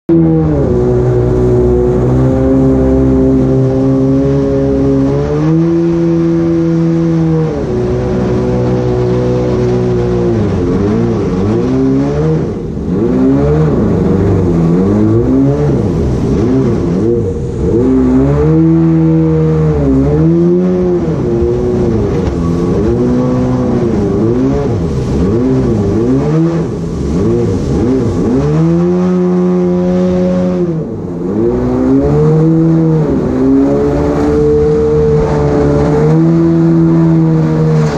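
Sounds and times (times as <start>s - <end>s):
jet boat engine running: 0.1s - 37.9s.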